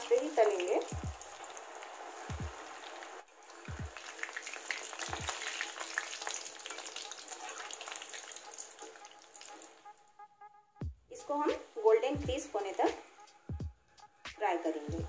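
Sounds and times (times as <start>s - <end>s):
deep-frying crackling sizzle: 0.0s - 10.1s.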